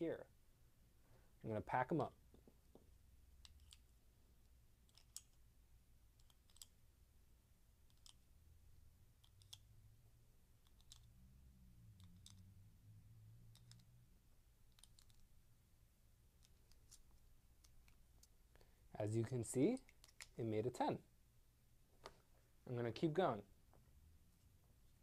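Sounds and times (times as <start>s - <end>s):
plastic blocks clicking: 4.9s - 5.4s, 7.9s - 8.2s, 9.2s - 9.6s, 10.6s - 11.1s, 12.0s - 12.4s.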